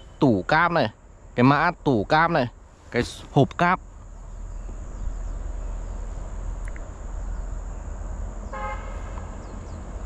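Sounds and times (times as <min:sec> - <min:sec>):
low outdoor rumble: 0:00.0 - 0:10.0
vehicle horn toot: 0:08.5 - 0:09.3.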